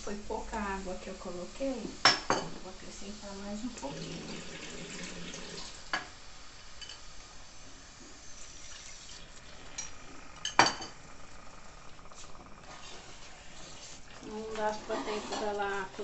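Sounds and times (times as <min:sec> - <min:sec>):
water pouring into a pot: 0:00.5 - 0:16.0
glass clinking on pot: 0:06.8 - 0:07.1, 0:09.8 - 0:11.0.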